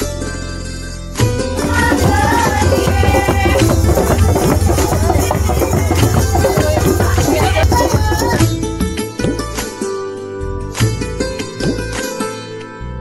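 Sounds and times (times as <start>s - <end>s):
fast busy drumming: 1.6s - 8.5s.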